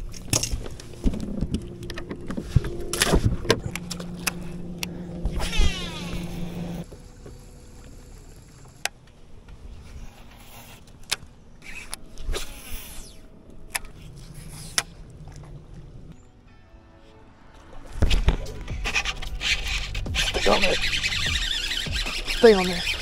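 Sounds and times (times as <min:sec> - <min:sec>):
electric motor hum: 0:00.0 - 0:09.4, 0:18.6 - 0:23.0
reel clicks: 0:00.0 - 0:09.6, 0:10.2 - 0:15.1, 0:18.3 - 0:23.0
fishing reel spool whine: 0:00.0 - 0:10.8, 0:11.4 - 0:15.0, 0:18.9 - 0:23.0.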